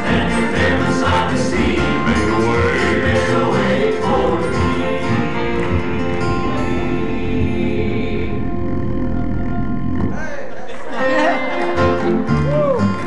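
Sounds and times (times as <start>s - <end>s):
male quartet singing in harmony: 0.0s - 10.0s
guitar: 0.0s - 13.0s
piano: 0.0s - 13.0s
upright bass: 0.0s - 13.0s
deep bass voice: 0.8s - 10.7s.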